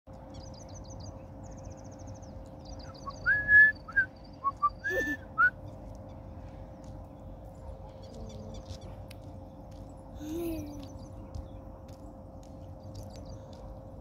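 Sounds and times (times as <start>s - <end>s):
man whistling: 3.2s - 5.6s.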